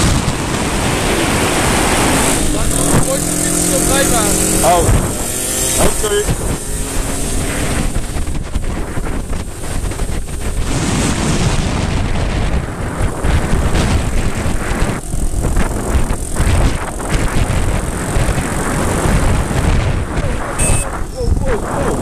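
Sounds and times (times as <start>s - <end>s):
wind buffeting microphone: 0.0s - 22.0s
moped engine running: 0.1s - 10.6s, 12.8s - 21.2s.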